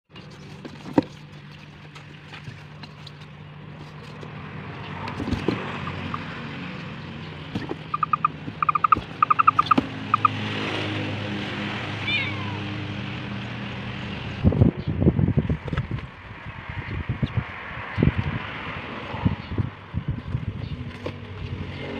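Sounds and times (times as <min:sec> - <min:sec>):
quick high-pitched calls: 0:07.9 - 0:10.4
wavering chirp: 0:07.9 - 0:10.4.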